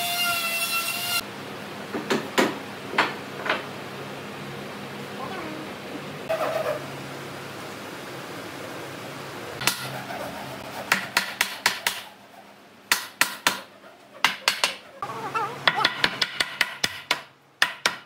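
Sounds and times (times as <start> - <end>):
hammer striking wood: 15.7 - 18.0.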